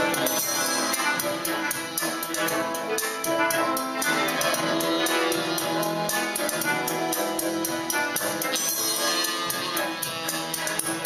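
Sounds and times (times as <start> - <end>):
instrumental music: 0.0 - 11.0.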